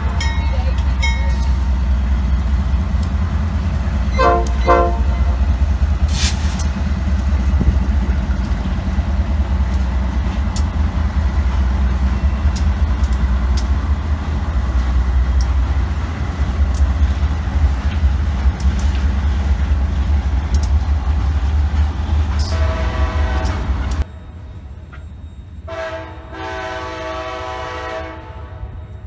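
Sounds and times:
train wheel clicks on rails: 0.0 - 4.8, 5.4 - 24.1
diesel locomotives rumbling: 0.0 - 29.0
train horn: 4.1 - 5.4, 22.4 - 23.8, 25.6 - 28.9.

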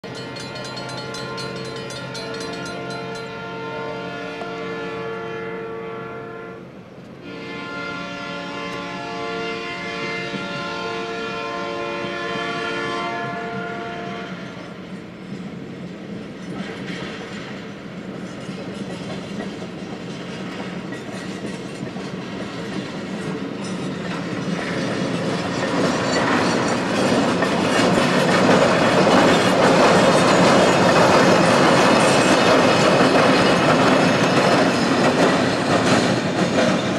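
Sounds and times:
train wheels clacking over rail joints: 16.4 - 36.9.

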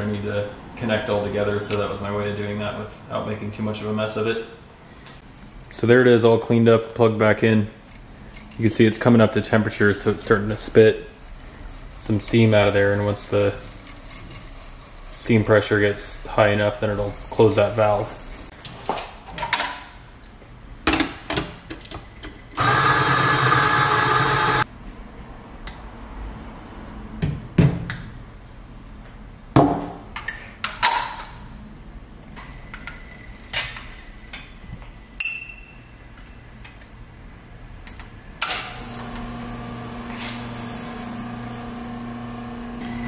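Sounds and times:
electric coffee grinder running: 22.6 - 24.6, 38.8 - 43.0.

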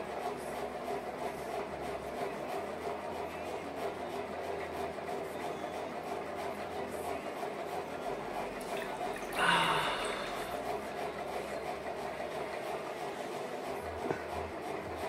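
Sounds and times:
steady background hum: 0.0 - 15.0
water sloshing and splashing in a bowl: 8.4 - 10.6.

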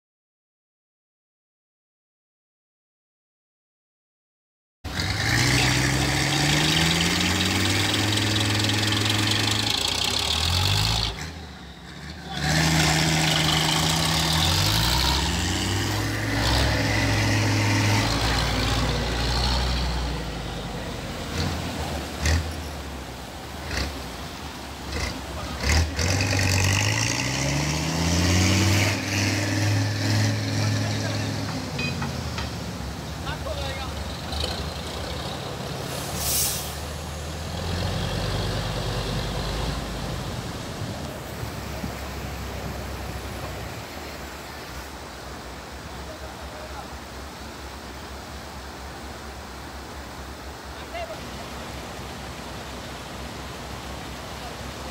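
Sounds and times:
truck engine revving: 4.9 - 44.4
water rushing and splashing: 4.9 - 54.9.

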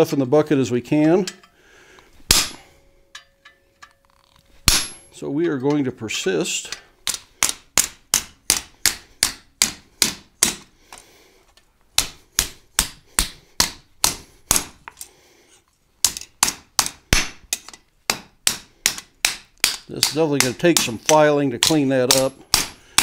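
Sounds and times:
hammer striking chisel on steel: 1.0 - 1.6, 2.3 - 4.0, 4.6 - 5.8, 6.6 - 10.7, 12.0 - 14.8, 16.0 - 23.0.

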